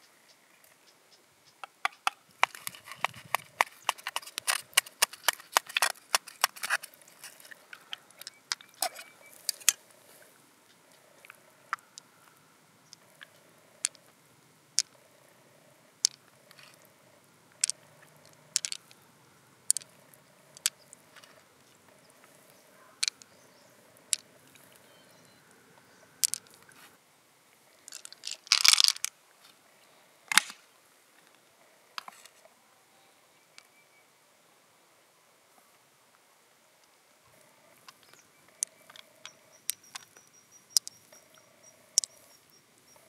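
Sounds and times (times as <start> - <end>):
pearls clicking against shell: 1.6 - 9.8, 12.8 - 14.1, 14.8 - 15.0, 17.6 - 19.0, 19.7 - 21.3, 23.0 - 24.8, 26.2 - 26.7, 27.9 - 29.1, 38.6 - 41.4, 42.0 - 42.3.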